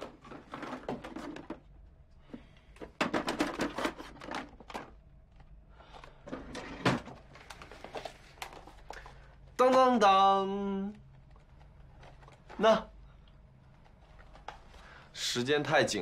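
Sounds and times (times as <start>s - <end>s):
objects clattering in a drawer: 0.0s - 1.8s, 2.4s - 5.0s, 6.2s - 8.8s.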